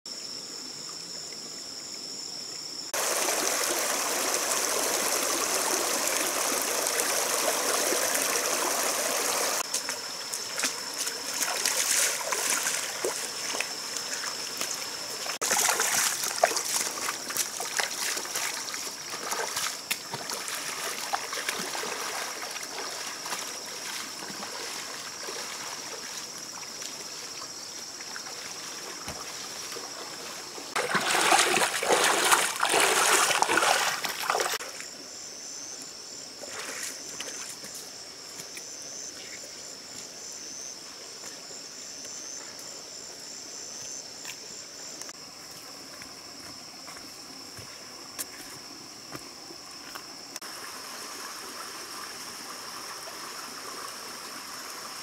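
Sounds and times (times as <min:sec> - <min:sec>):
feet wading through water: 0:03.0 - 0:34.7
stream running over rocks: 0:03.0 - 0:35.1, 0:35.8 - 0:55.0.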